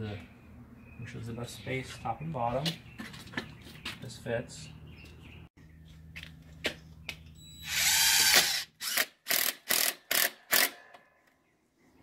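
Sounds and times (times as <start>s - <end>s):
cordless drill driving screw: 7.6s - 10.8s.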